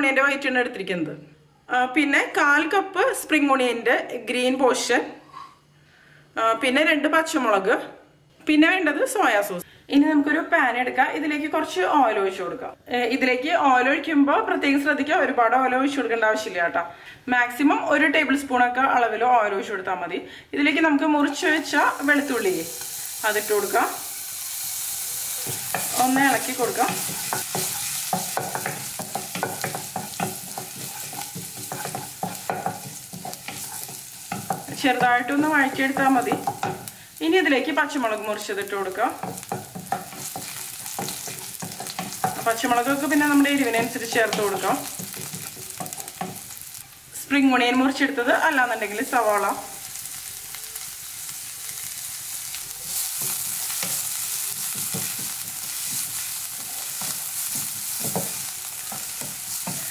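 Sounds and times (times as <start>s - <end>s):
garlic sizzling in oil: 21.0s - 59.9s
wooden spatula scraping a pan: 25.2s - 37.0s, 39.2s - 46.5s, 52.8s - 59.9s.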